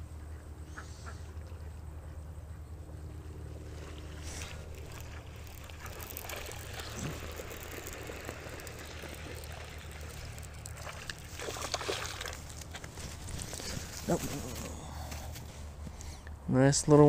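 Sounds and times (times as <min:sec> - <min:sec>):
steady low hum: 0:00.0 - 0:17.0
fishing reel cranking: 0:04.1 - 0:12.7.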